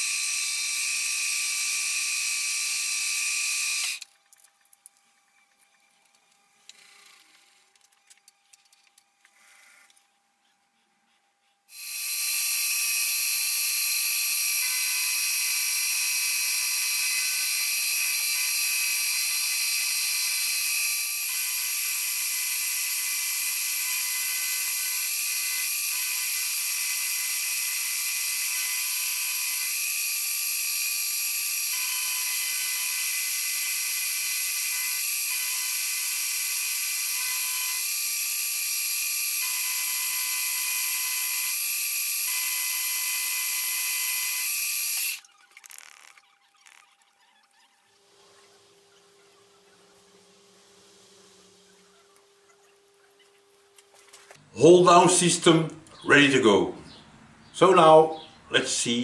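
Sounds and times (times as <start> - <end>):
milling machine whining: 11.7 - 46.8.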